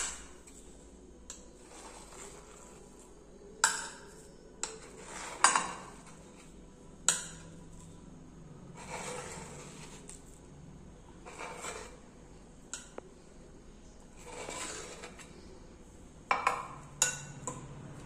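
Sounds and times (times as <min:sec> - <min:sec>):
metal spoon clinking on plates: 0:03.6 - 0:06.2, 0:16.3 - 0:18.0.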